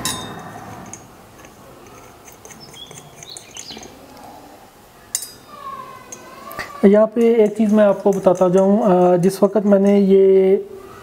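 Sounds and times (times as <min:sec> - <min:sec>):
steel bolts and washers clinking: 0:00.0 - 0:04.0, 0:05.1 - 0:05.4, 0:06.1 - 0:06.3, 0:07.1 - 0:10.0.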